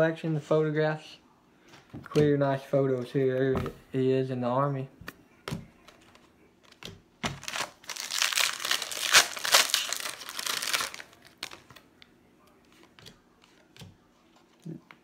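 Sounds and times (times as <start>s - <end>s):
wrapper tearing and crinkling: 7.4s - 11.8s.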